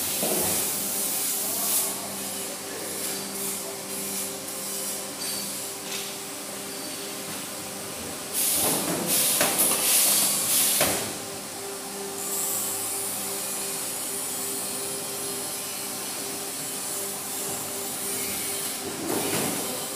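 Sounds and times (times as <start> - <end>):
loud hissing noise: 8.3 - 19.9.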